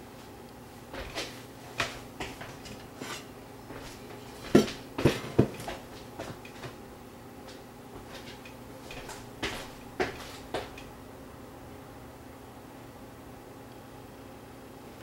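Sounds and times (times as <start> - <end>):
dishes and cookware clattering: 1.8 - 3.3.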